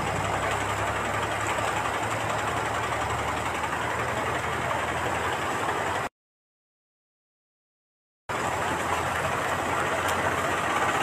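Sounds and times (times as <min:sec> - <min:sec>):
floodwater rushing: 0:08.3 - 0:11.0.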